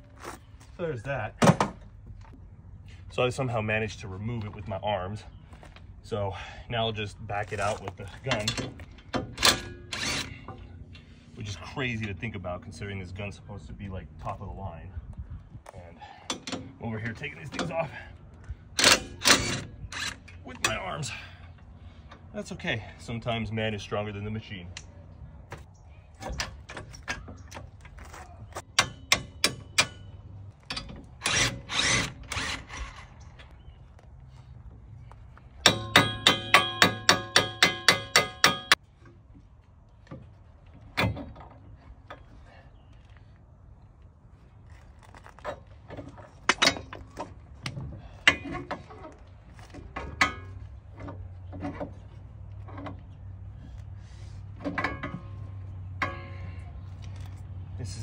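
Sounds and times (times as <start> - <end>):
metal tools clanking: 7.6 - 11.2, 18.8 - 22.3, 45.3 - 53.3, 54.4 - 57.4
cordless impact wrench: 31.2 - 33.0.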